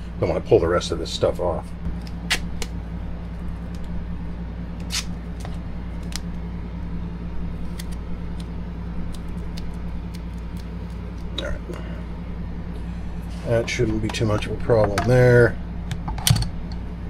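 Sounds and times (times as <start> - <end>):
steady low hum: 0.0 - 17.0
tape rustling: 7.6 - 11.8.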